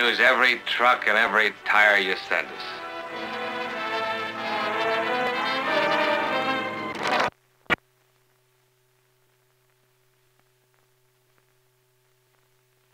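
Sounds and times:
brass-led film music: 0.0s - 7.3s
faint steady hum: 0.0s - 12.9s
light crackle: 6.8s - 12.9s.

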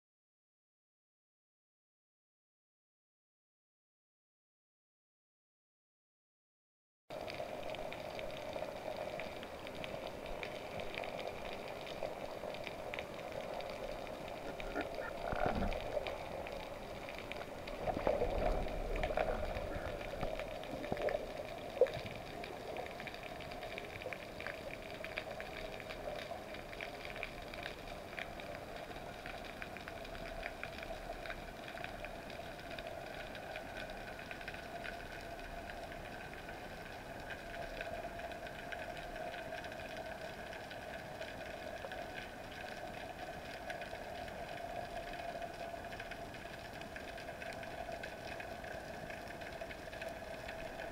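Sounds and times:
underwater crackling: 7.3s - 50.9s
steady hum: 9.9s - 23.1s.

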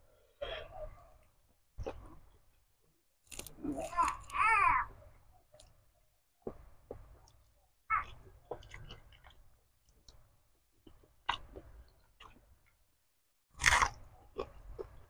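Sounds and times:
small crunches and clicks: 3.2s - 4.4s
chewing and mouth sounds: 6.9s - 12.8s, 13.6s - 15.0s.

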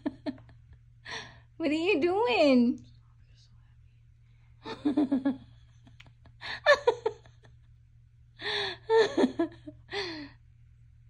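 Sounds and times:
woman laughing and gasping: 6.4s - 7.2s.

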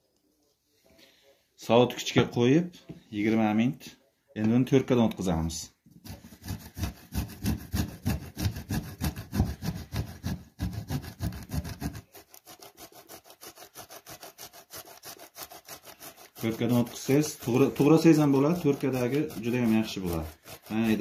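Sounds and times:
meat grated on metal grater: 6.1s - 21.0s.

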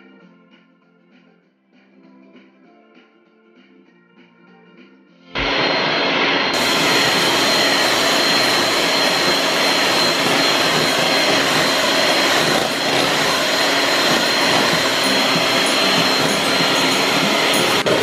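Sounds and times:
electric hand mixer whining: 5.4s - 18.0s.

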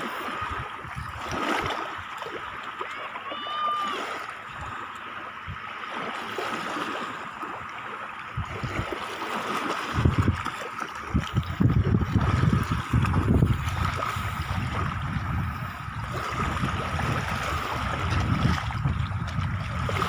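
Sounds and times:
wind buffeting microphone: 0.0s - 2.2s, 8.3s - 20.0s
seawater washing at shoreline: 0.0s - 20.0s.

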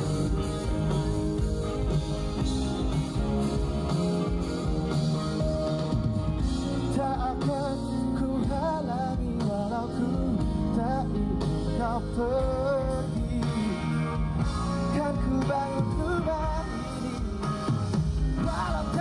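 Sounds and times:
drums: 0.0s - 19.0s
electric guitar: 0.0s - 19.0s
male singer: 6.6s - 19.0s.

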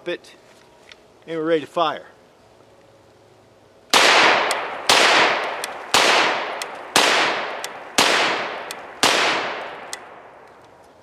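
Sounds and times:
carbine gunshots: 3.9s - 10.4s.

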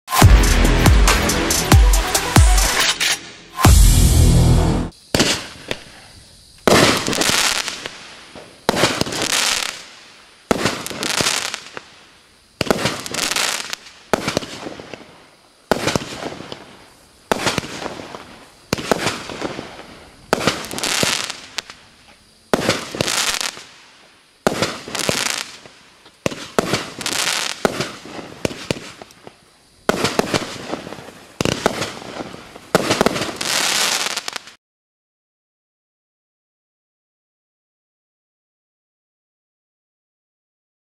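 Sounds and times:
firework shots with crackle: 4.9s - 6.0s, 6.6s - 21.8s, 22.5s - 34.6s.

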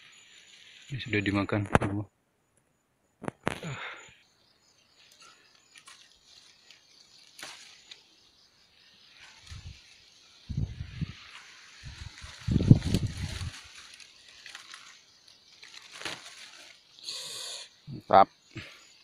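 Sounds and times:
leaves and stems rustling: 4.9s - 17.6s.

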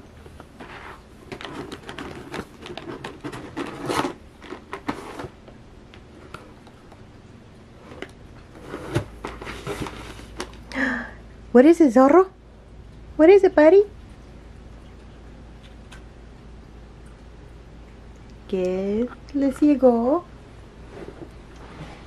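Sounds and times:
cardboard and paper rustling: 0.4s - 5.4s, 8.6s - 10.6s.

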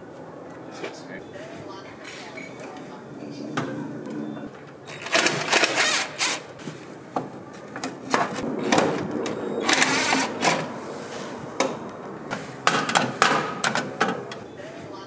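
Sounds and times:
cordless drill running: 5.0s - 6.5s, 9.6s - 10.3s.

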